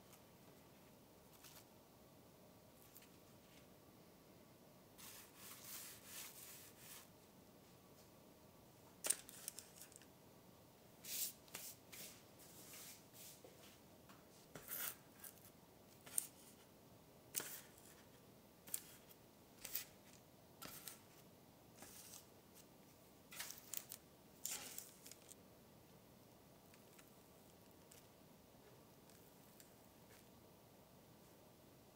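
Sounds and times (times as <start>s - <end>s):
parchment paper crinkling: 23.3s - 25.4s.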